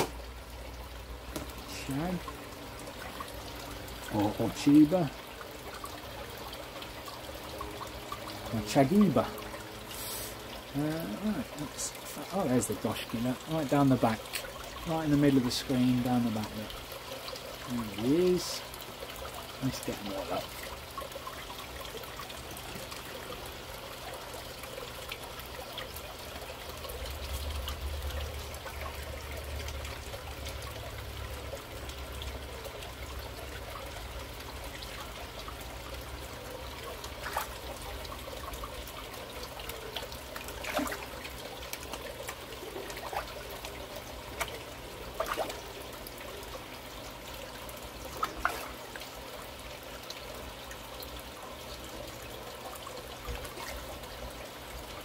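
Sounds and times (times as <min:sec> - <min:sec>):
water pouring into a vat: 0:00.0 - 0:55.0
splashes at water surface: 0:37.2 - 0:37.8, 0:40.0 - 0:45.8, 0:48.1 - 0:49.0.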